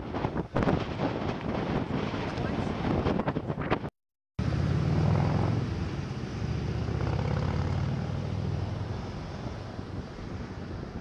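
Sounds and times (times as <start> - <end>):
wind buffeting microphone: 0.0 - 11.0
low engine drone: 4.4 - 11.0.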